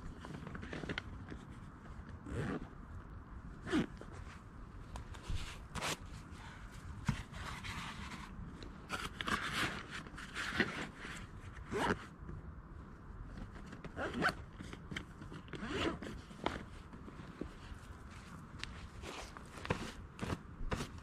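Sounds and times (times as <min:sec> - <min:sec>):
gear handling rustle: 0:13.3 - 0:21.0.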